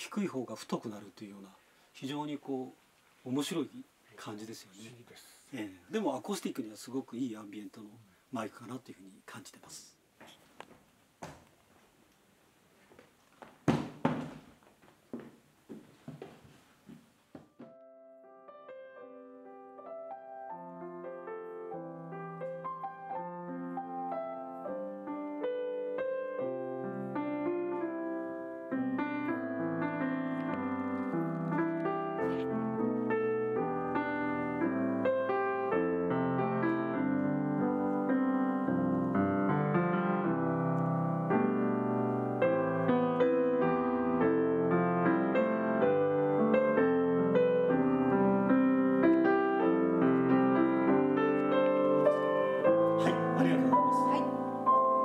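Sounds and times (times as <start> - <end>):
grand piano playing: 17.6 - 55.0.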